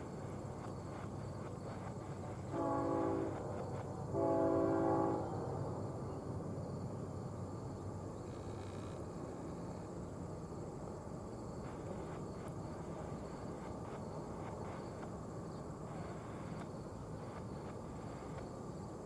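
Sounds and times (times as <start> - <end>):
locomotive air horn: 2.5 - 3.4, 4.1 - 5.4.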